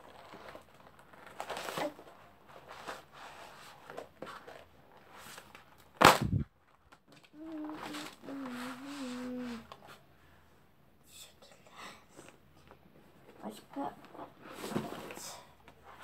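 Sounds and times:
paper rustling: 0:00.0 - 0:10.0
person humming: 0:07.4 - 0:09.7.

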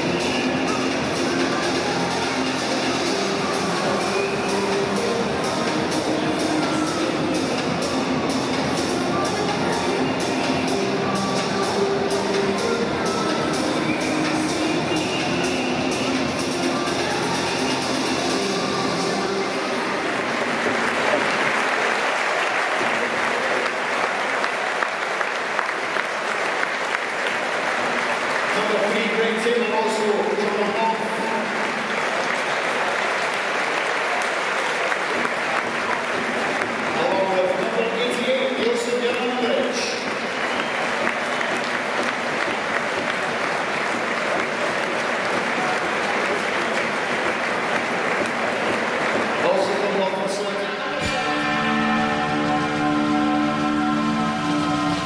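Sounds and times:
stadium crowd applauding: 0:00.0 - 0:10.6, 0:11.2 - 0:55.0.

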